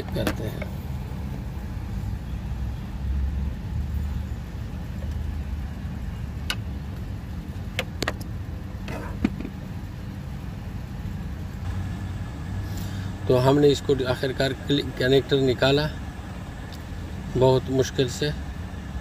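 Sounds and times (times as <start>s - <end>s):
car engine idling: 0.0s - 19.0s
connector clicks and knocks: 7.7s - 8.3s, 8.9s - 9.6s.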